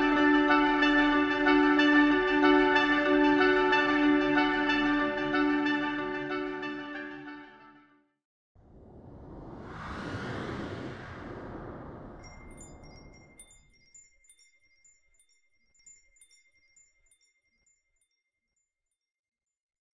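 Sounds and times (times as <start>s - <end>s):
loud whoosh: 8.6s - 13.6s
high sparkling chime notes: 12.2s - 18.2s.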